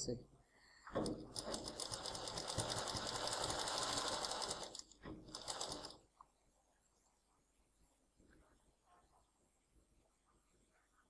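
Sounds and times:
sewing machine stitching: 0:01.0 - 0:06.0.

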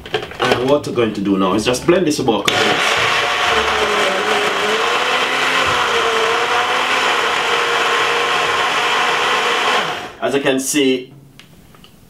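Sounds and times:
blender motor whirring: 0:02.5 - 0:10.2.

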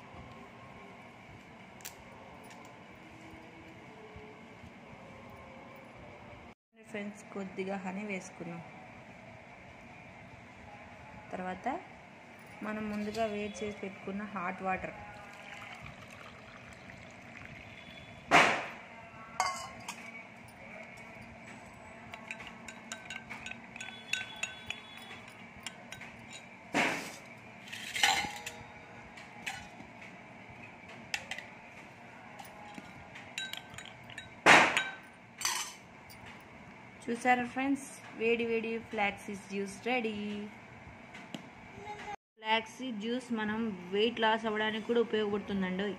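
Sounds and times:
spoon clinking against glass: 0:19.4 - 0:21.4, 0:22.0 - 0:26.5, 0:32.6 - 0:36.2
spoon stirring in glass: 0:19.4 - 0:26.6, 0:32.4 - 0:34.4.

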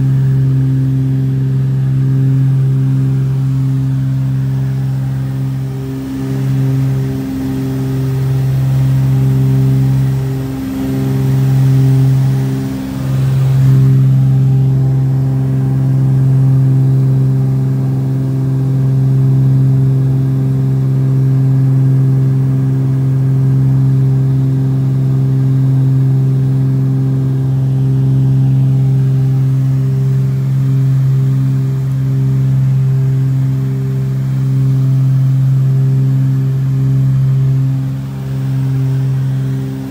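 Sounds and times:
airplane cabin engine drone: 0:00.0 - 0:39.9.

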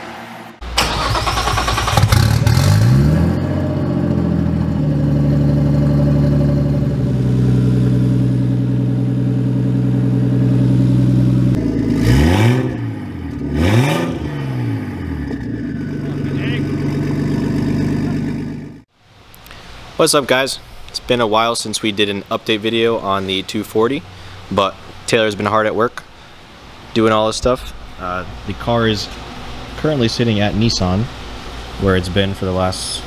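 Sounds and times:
car engine starting and idling: 0:00.0 - 0:18.9
engine revving: 0:00.8 - 0:18.9.

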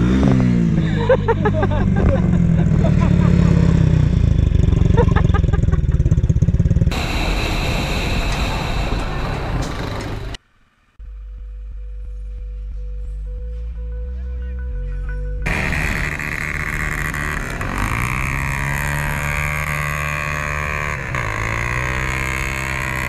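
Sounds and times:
quad bike engine running hard: 0:00.0 - 0:10.4, 0:15.5 - 0:23.0
wind hiss: 0:06.9 - 0:10.4
background music with bass notes: 0:11.0 - 0:17.8.

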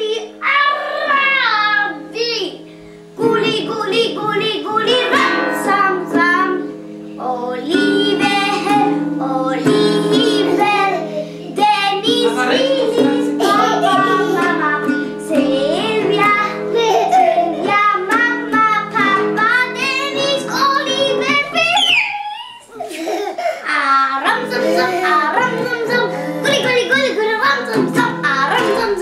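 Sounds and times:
girl singing: 0:00.0 - 0:22.8, 0:23.6 - 0:29.0
classical guitar strumming: 0:01.2 - 0:22.1, 0:24.2 - 0:29.0.

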